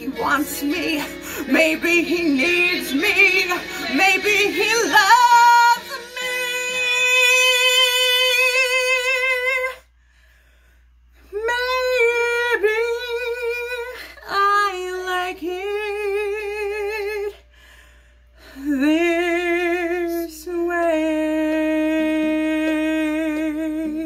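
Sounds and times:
woman singing solo: 0.0s - 9.8s.

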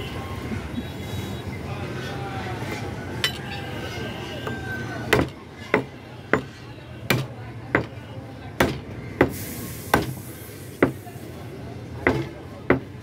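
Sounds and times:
chopper chopping meat on wood: 4.5s - 8.0s, 8.6s - 10.2s, 12.0s - 13.0s.

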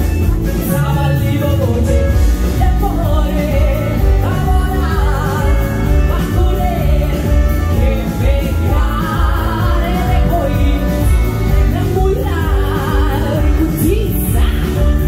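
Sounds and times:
heavy bass line: 0.0s - 15.0s
live band music: 0.0s - 15.0s
person singing: 0.0s - 15.0s.

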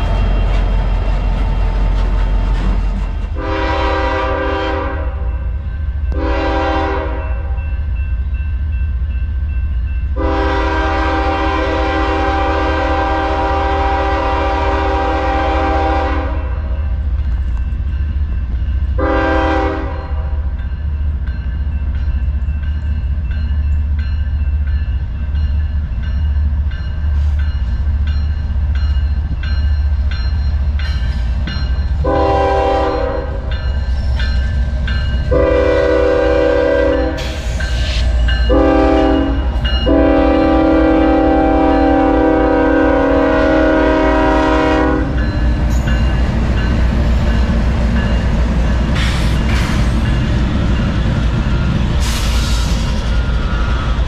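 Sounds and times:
train rumbling past: 0.0s - 54.0s
locomotive air horn blasts: 3.4s - 5.3s, 6.2s - 7.5s, 10.2s - 16.7s, 19.0s - 20.4s, 32.0s - 33.5s, 35.3s - 37.6s, 38.5s - 45.2s.

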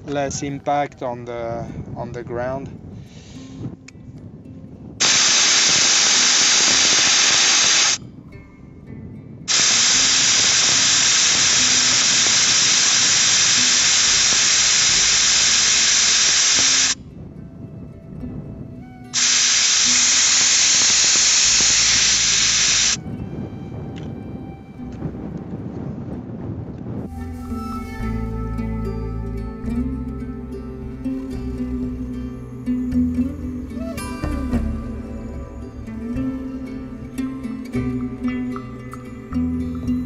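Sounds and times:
air hissing from tyre valve: 5.0s - 8.0s, 9.5s - 17.0s, 19.2s - 23.0s.

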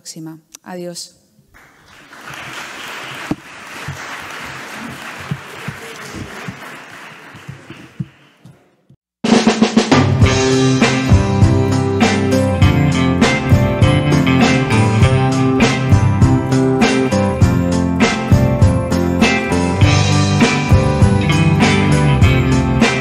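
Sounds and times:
audience applauding: 1.6s - 8.6s
loud music with drum kit: 9.2s - 23.0s.

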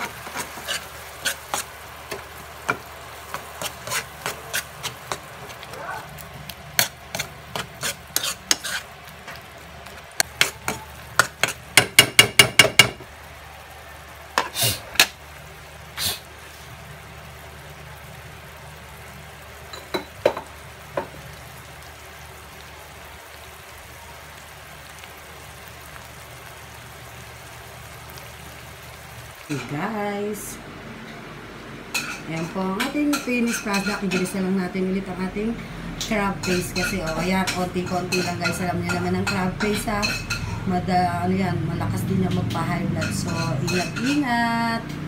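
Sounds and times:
spoon scraping a frying pan: 0.0s - 5.7s, 6.8s - 9.0s, 10.2s - 12.0s, 31.9s - 34.4s, 36.4s - 40.8s, 42.3s - 44.3s
paste sizzling in a pan: 0.0s - 30.5s, 31.6s - 44.4s.

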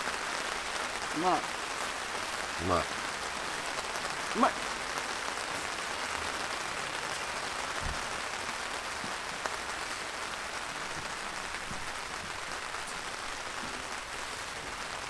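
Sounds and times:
heavy rain on tent fabric: 0.0s - 15.0s.

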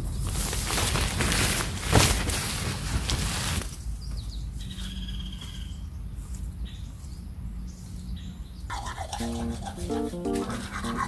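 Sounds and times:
tent fabric rustling: 0.2s - 3.8s.

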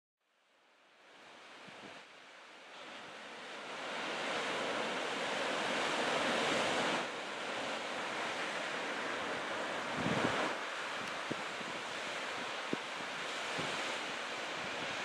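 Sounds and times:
sea surf breaking on rocks: 2.7s - 15.0s
wind buffeting microphone: 9.7s - 15.0s.

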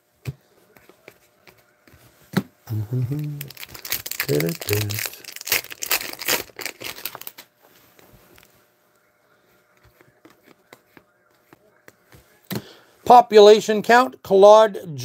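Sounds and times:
foil wrapper crinkling: 3.3s - 7.5s.

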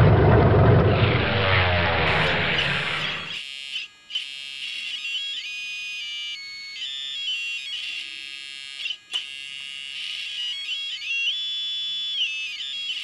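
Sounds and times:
buzzy electronic tones: 0.0s - 3.4s.

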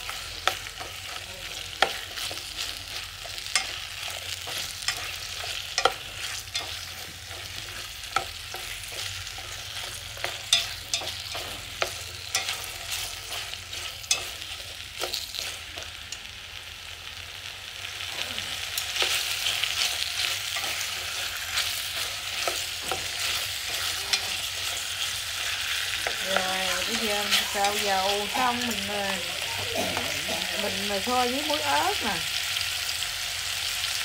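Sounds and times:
food sizzling in hot oil: 0.0s - 34.0s
chopsticks clicking against pot: 3.2s - 3.8s, 4.4s - 7.0s, 10.2s - 12.7s.

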